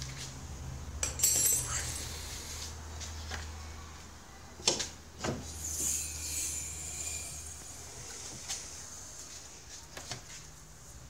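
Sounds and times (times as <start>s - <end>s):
steady low hum: 5.4s - 11.0s.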